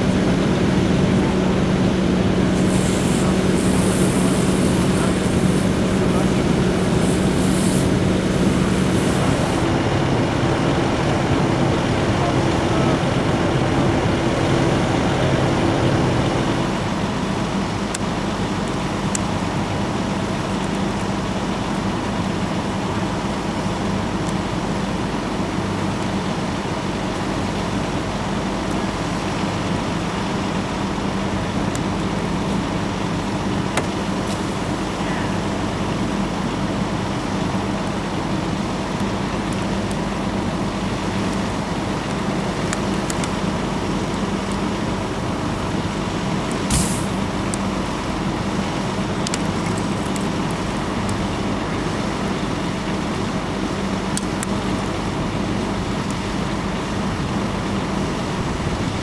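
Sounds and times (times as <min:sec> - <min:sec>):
engine drone: 0:00.0 - 0:59.0
sharp pops: 0:46.5 - 0:47.6.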